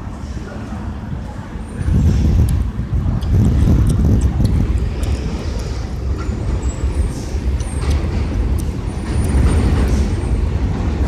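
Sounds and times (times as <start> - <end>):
subway train rumbling: 0.0 - 11.0.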